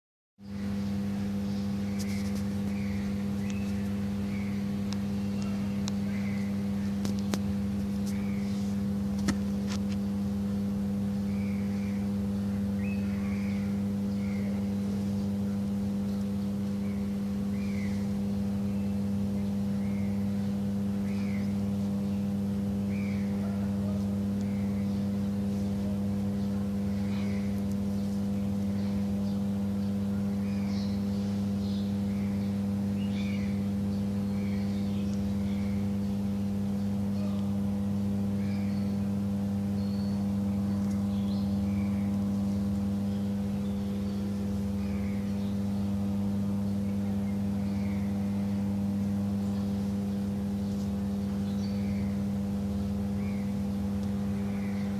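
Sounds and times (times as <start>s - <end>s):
machine humming drone: 0.4s - 54.9s.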